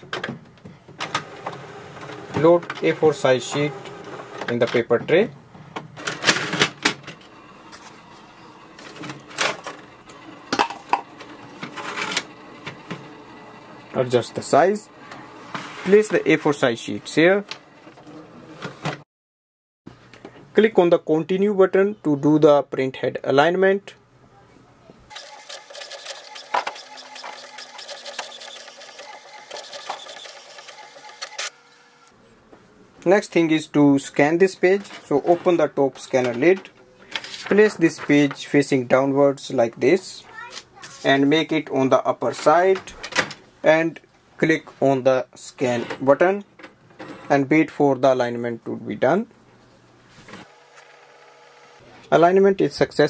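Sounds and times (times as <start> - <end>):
printer carriage clicking and whirring: 1.0 - 4.8, 11.0 - 14.0, 25.1 - 31.6.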